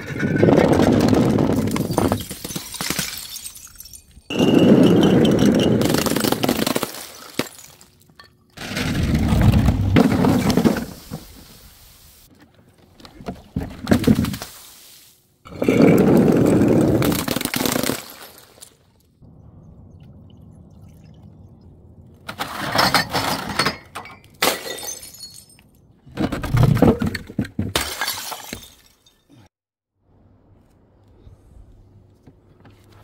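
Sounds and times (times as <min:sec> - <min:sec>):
glass bottles shattering: 0:00.6 - 0:08.6, 0:22.3 - 0:25.8, 0:27.0 - 0:29.5.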